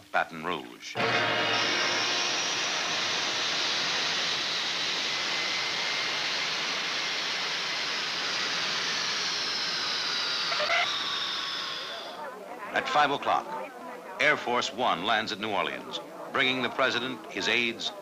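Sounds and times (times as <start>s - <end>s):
high engine whine: 1.0s - 12.2s
jet engines roaring: 1.0s - 13.3s.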